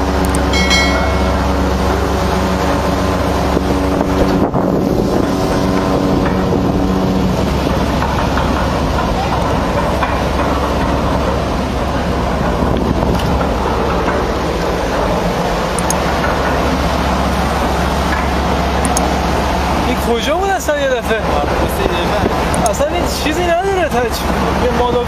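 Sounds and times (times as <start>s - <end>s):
rushing water: 0.0s - 25.0s
ship engine rumbling: 0.0s - 25.0s
wind on microphone: 0.5s - 9.6s, 10.9s - 15.2s.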